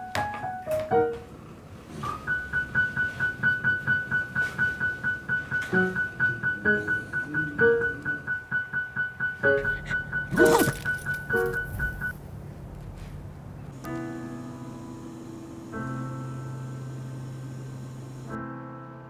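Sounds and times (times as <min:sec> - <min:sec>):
solo piano music: 0:00.0 - 0:12.1, 0:13.8 - 0:19.0.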